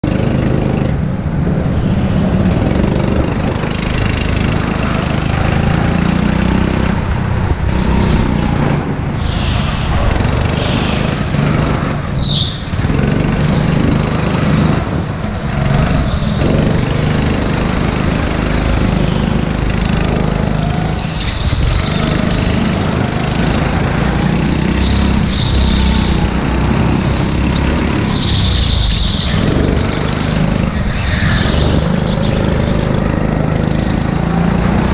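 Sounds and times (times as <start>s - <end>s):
go-kart engine running: 0.0s - 9.2s, 10.0s - 34.9s
high squeal: 8.3s - 12.9s, 17.8s - 34.2s.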